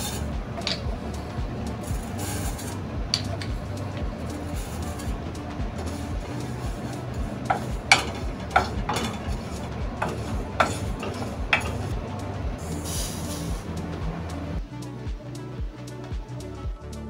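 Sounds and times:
spatula scraping seeds in pan: 0:00.0 - 0:11.9, 0:12.7 - 0:13.6
background music with beat: 0:00.0 - 0:17.0.

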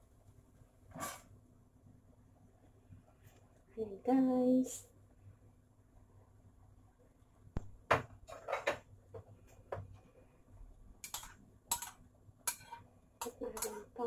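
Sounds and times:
metal spoon clinking on ceramic bowl: 0:11.0 - 0:13.8.

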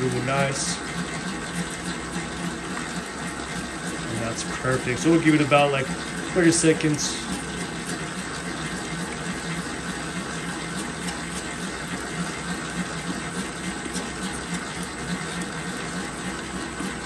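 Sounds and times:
dough mixer motor whirring: 0:00.0 - 0:17.0.

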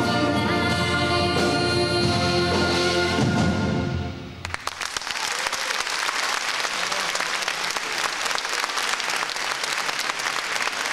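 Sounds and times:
audience applauding: 0:04.4 - 0:10.9.

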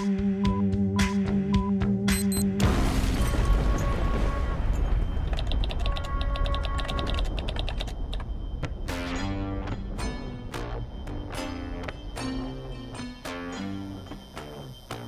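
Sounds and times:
dense crackling with low rumble: 0:02.6 - 0:12.2
fast electronic clicks: 0:05.2 - 0:08.3.

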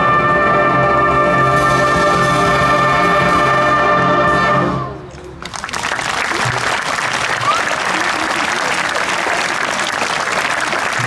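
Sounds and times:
brass choir chord: 0:00.0 - 0:04.9
applause: 0:05.1 - 0:11.0.

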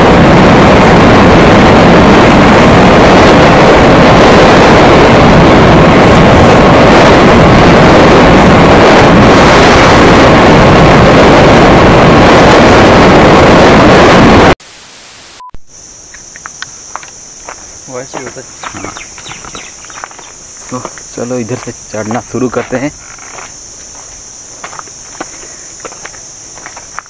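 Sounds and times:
wind buffeting microphone: 0:00.0 - 0:14.6, 0:16.1 - 0:27.0
motorcycle ride noise: 0:00.0 - 0:27.0.

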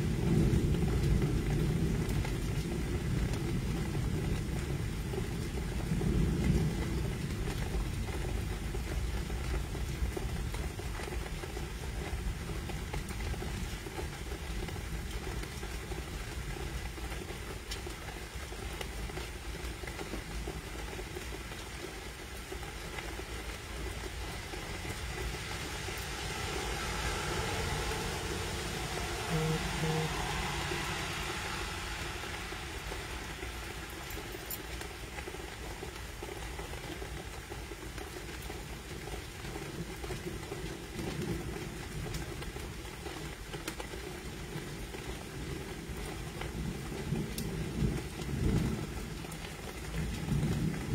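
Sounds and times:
rain: 0:00.0 - 0:50.9
wind: 0:00.0 - 0:50.9
short low tones: 0:28.6 - 0:33.4.

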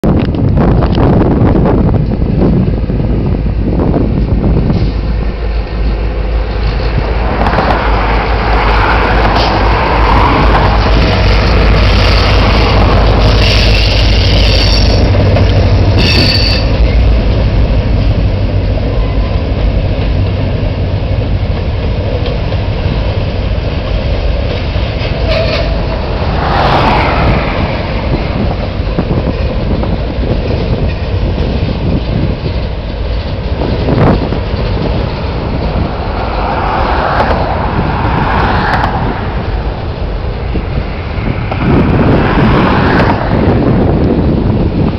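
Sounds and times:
diesel locomotive rumble: 0:00.0 - 0:44.9
train wheels clattering on rails: 0:04.1 - 0:37.7
high wheel squeals: 0:11.9 - 0:15.2, 0:15.8 - 0:16.9.

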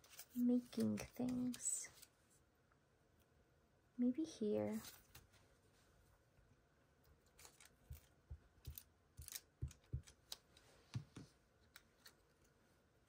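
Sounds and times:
paper and stationery handling: 0:00.0 - 0:02.2.

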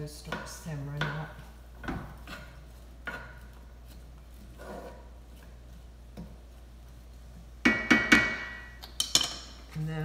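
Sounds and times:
utensil knocking on frying pan: 0:07.6 - 0:09.3.

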